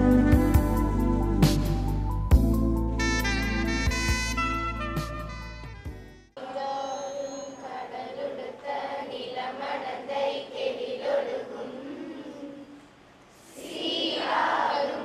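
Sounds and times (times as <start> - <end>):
girls singing in unison: 6.4 - 15.0.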